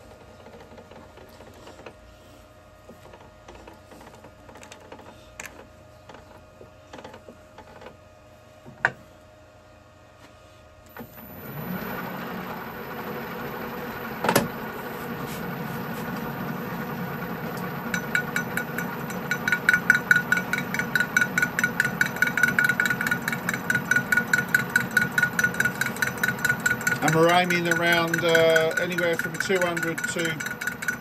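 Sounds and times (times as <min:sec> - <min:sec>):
lathe running: 0:11.0 - 0:31.0
ringing metallic ticks: 0:17.9 - 0:31.0.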